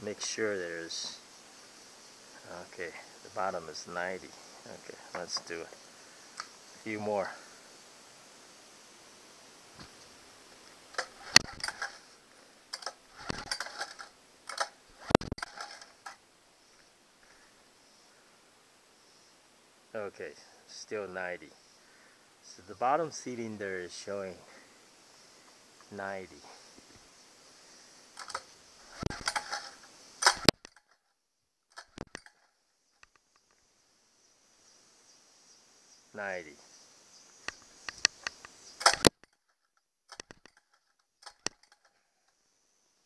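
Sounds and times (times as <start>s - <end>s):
recoil starter mechanical clicks: 10.9s - 12.0s, 12.7s - 16.2s, 28.2s - 30.8s, 37.5s - 39.2s, 41.2s - 41.9s
sharp loud click: 28.2s - 30.7s, 37.5s - 39.3s.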